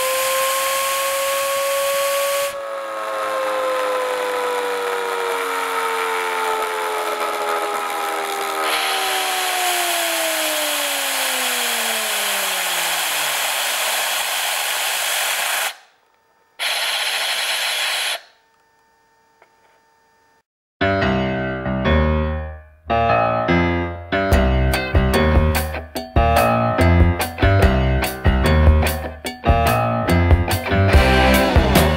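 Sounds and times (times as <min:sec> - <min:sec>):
turbine whine falling in pitch: 0:00.0 - 0:19.1
compressed air hissing: 0:12.8 - 0:15.9, 0:16.6 - 0:18.3.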